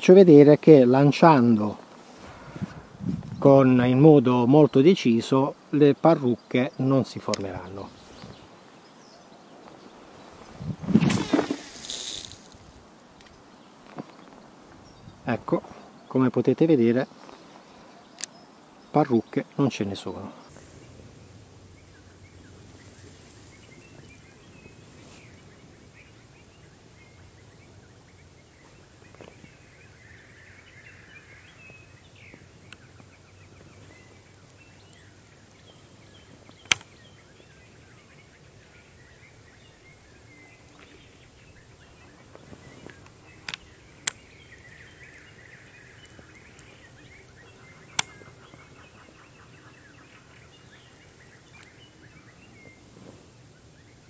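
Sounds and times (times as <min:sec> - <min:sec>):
faint bird calls: 0:01.3 - 0:21.0, 0:28.5 - 0:52.9
sharp single clicks: 0:36.6 - 0:36.9.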